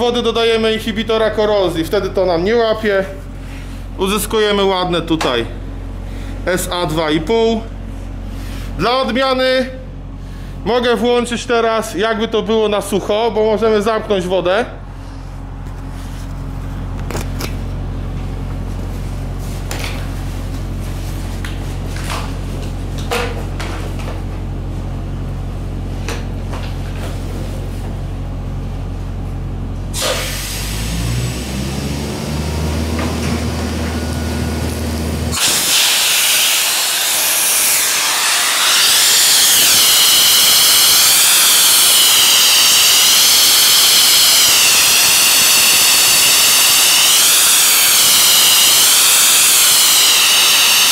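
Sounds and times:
low machine hum: 0.0 - 50.9
blasting nozzle hissing: 30.0 - 31.0, 35.3 - 50.9.

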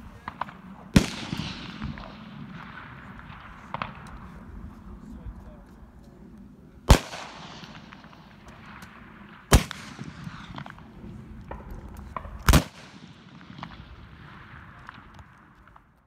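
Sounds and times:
rifle shots cracking: 0.2 - 4.5, 6.9 - 15.8.

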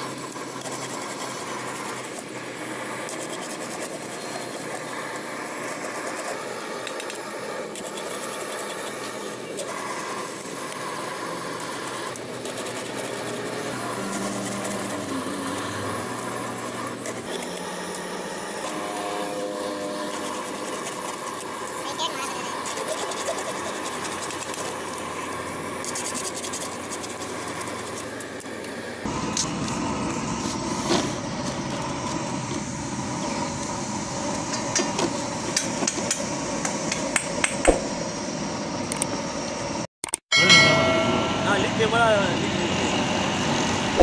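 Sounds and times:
low hum: 40.4 - 44.0.

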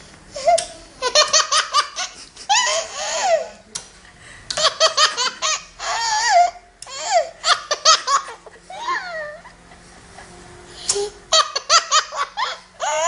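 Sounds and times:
baby laughing: 11.3 - 13.0.

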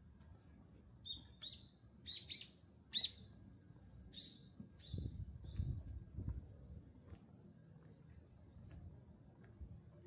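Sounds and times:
bird chirping: 1.0 - 3.4, 4.1 - 5.8.

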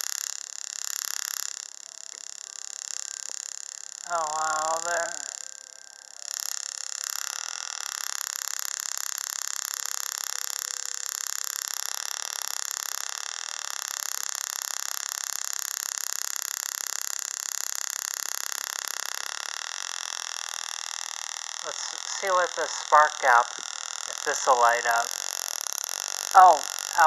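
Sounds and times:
tesla coil buzzing hiss: 0.0 - 27.0.

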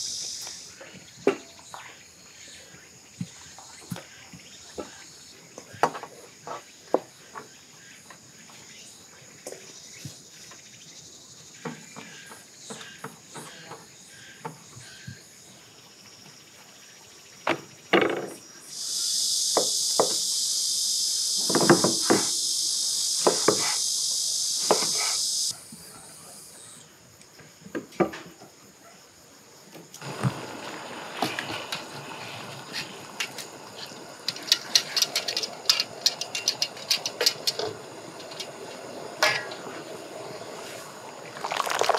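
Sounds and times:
cicada buzzing loudly: 0.0 - 0.9, 16.0 - 27.0, 29.9 - 41.9
faint insect drone: 0.0 - 41.9.

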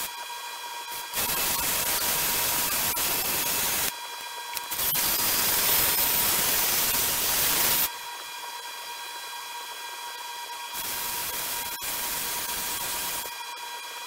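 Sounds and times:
steady hissing bursts: 1.1 - 3.9.

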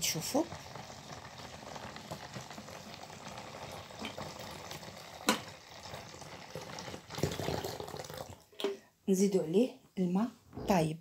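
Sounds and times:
hot water pouring into basin: 0.0 - 8.5.

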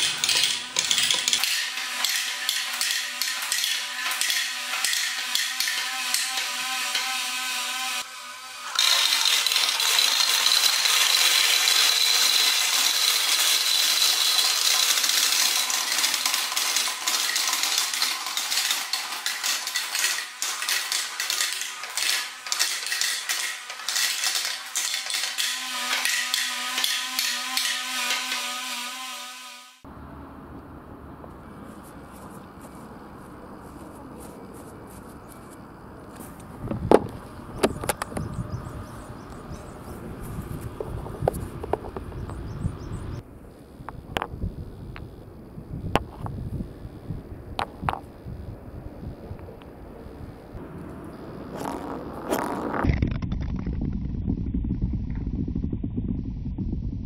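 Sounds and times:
plastic balls clattering: 8.8 - 25.5
steady hum: 29.8 - 57.0.

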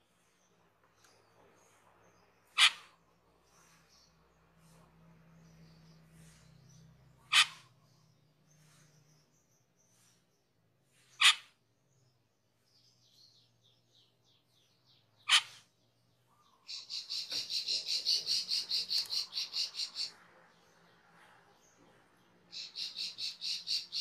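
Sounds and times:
soft bird twittering: 0.0 - 24.0
starling sharp calls: 1.6 - 4.1, 6.2 - 9.2, 11.0 - 11.6, 15.2 - 24.0
fast bird chattering: 2.5 - 3.0, 7.2 - 7.8, 11.1 - 11.5, 15.2 - 15.8, 16.4 - 20.6, 22.5 - 24.0.

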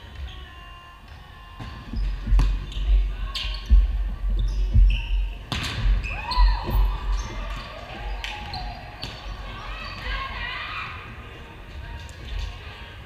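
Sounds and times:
sneakers squeaking: 0.0 - 11.1
volleyball hit: 5.5 - 6.0.

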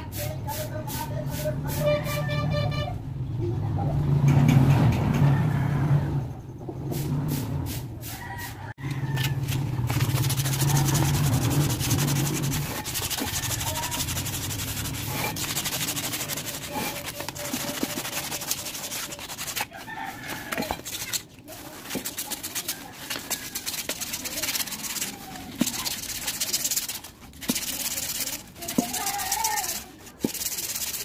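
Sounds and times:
sandpaper scraping metal: 0.0 - 2.5, 9.0 - 31.0
rooster crowing: 5.1 - 6.3, 8.0 - 9.7, 12.6 - 14.1, 19.6 - 20.8.

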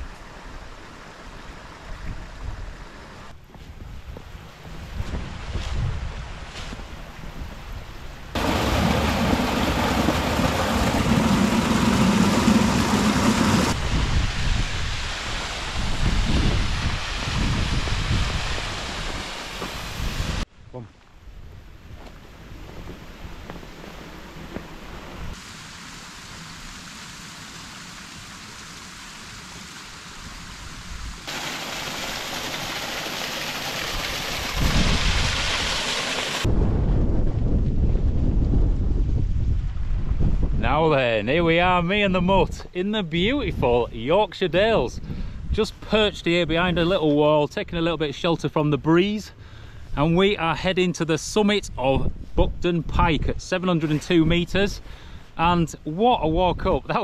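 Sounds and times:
wind rumble on microphone: 1.8 - 25.4, 34.4 - 35.6, 36.5 - 44.0, 44.6 - 47.0, 51.6 - 53.4
water rushing over rocks: 8.4 - 20.4, 24.0 - 36.5.

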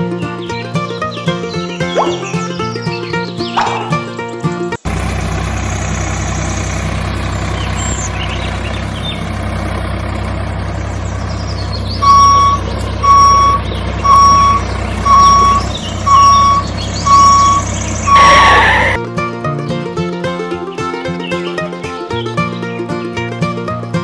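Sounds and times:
vehicle engine running: 0.0 - 24.0
reversing beeper: 1.9 - 2.6, 12.0 - 19.0.

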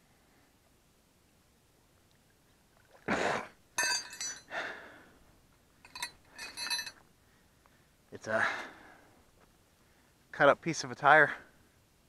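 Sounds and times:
metal hook clinking: 3.8 - 4.5, 5.8 - 7.0.

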